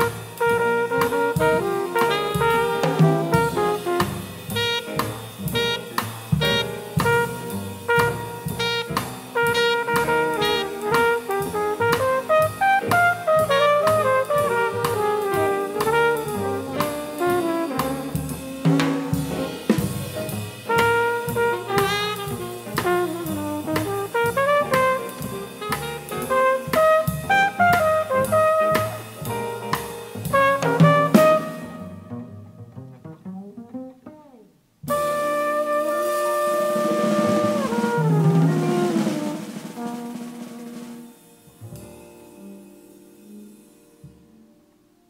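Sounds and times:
saxophone: 0:00.0 - 0:18.3, 0:20.8 - 0:29.2, 0:30.4 - 0:32.7
trumpet: 0:00.0 - 0:41.8
double bass: 0:00.0 - 0:42.4
drum kit swing beat: 0:00.0 - 0:44.6
piano: 0:00.0 - 0:45.0.

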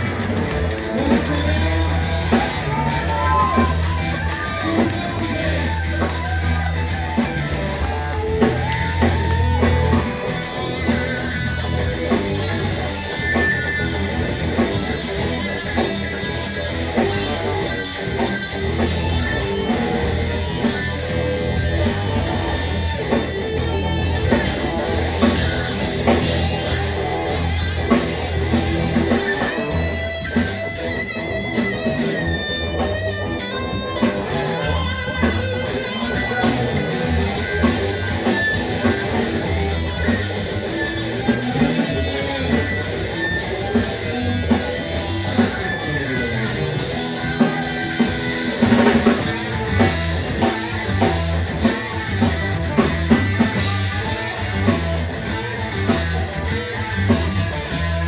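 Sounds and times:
bass guitar: 0:00.0 - 0:58.0
drum kit: 0:00.0 - 0:58.0
electric guitars: 0:00.0 - 0:58.0.

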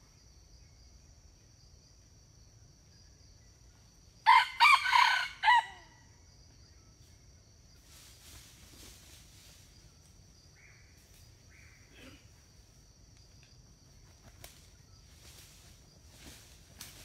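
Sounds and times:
high insect hum: 0:00.0 - 0:17.0
rustling in dry leaves: 0:07.8 - 0:10.3, 0:14.0 - 0:17.0.

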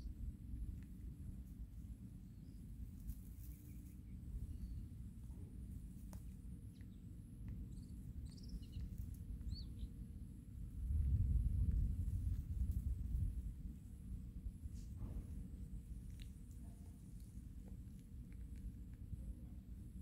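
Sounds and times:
low steady rumble: 0:00.0 - 0:20.0
faint bird chirps: 0:03.4 - 0:05.0, 0:06.6 - 0:10.0.

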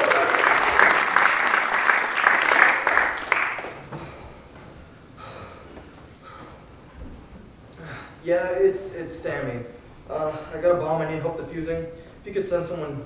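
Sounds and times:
audience applauding: 0:00.0 - 0:04.1.

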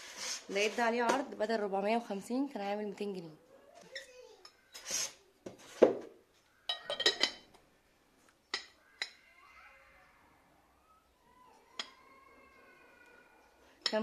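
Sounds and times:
porcelain canisters clinking: 0:06.7 - 0:07.5.

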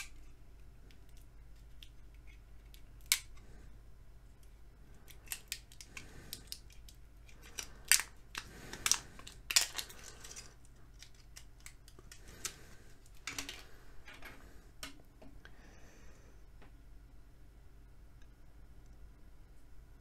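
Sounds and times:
plastic wrap crackling and snipping: 0:00.0 - 0:00.3, 0:00.9 - 0:03.4, 0:04.4 - 0:13.7.

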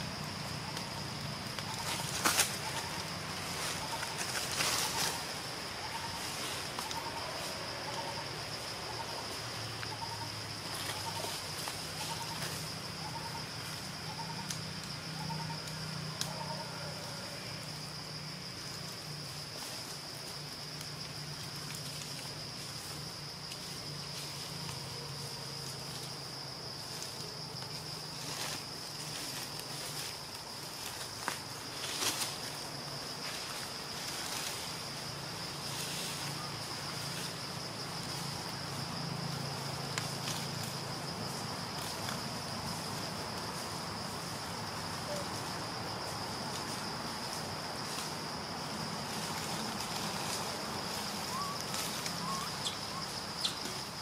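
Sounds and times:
high-pitched insect drone: 0:00.0 - 0:30.3.

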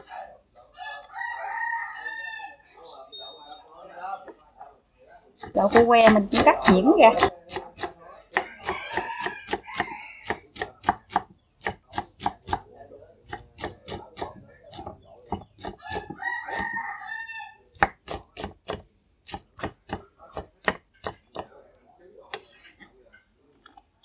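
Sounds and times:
knife chopping on wooden board: 0:05.4 - 0:12.7, 0:13.3 - 0:16.8, 0:17.8 - 0:21.5.

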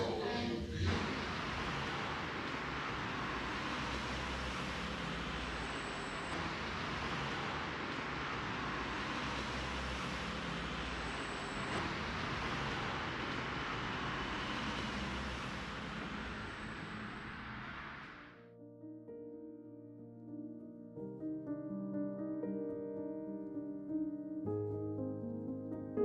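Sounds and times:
city street traffic: 0:00.0 - 0:18.4.

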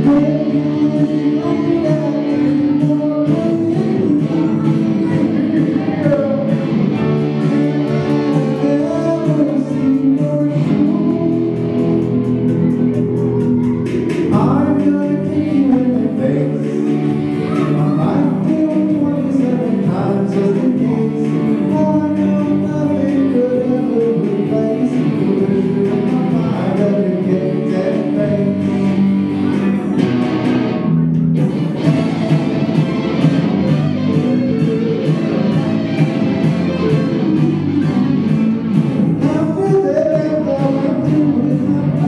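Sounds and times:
person singing: 0:00.0 - 0:30.5, 0:33.1 - 0:42.0
strummed electric guitar: 0:00.0 - 0:42.0.

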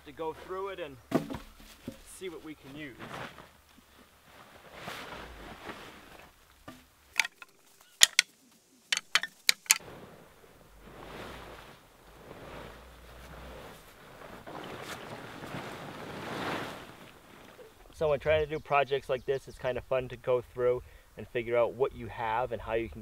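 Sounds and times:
plastic tarp rustling: 0:00.1 - 0:06.7, 0:09.8 - 0:18.0.

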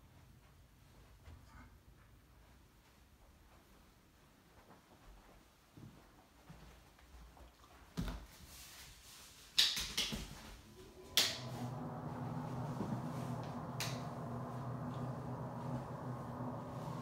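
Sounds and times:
extractor fan humming: 0:10.6 - 0:17.0.

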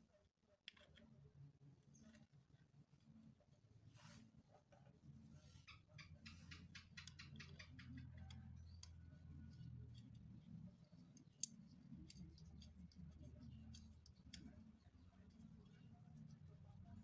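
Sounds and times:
small metal clicks and ticks: 0:00.6 - 0:01.1, 0:06.4 - 0:16.8
low steady hum: 0:08.0 - 0:17.0.

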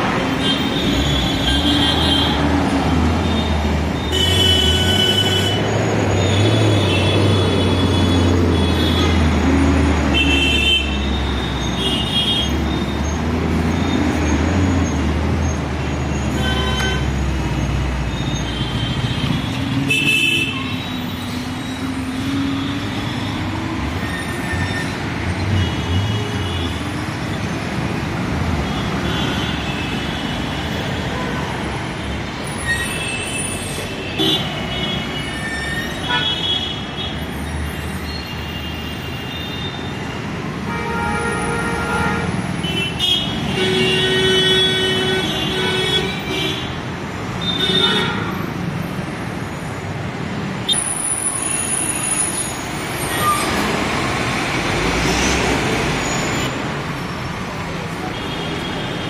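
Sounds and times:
road noise: 0:00.0 - 0:59.0
vehicle horns honking: 0:03.3 - 0:09.3, 0:10.1 - 0:12.6, 0:16.2 - 0:17.2, 0:18.4 - 0:20.9, 0:32.6 - 0:37.2, 0:40.6 - 0:46.8, 0:47.4 - 0:48.4
bus engine rumbling: 0:43.3 - 0:59.0.

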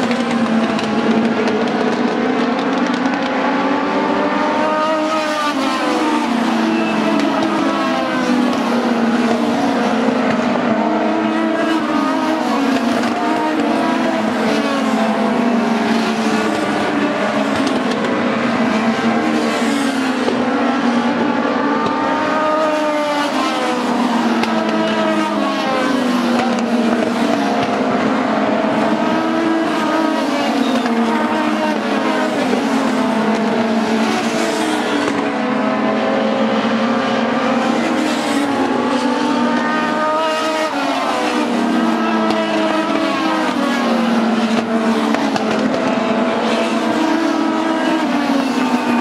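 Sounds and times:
race car engines revving: 0:00.0 - 0:49.0.

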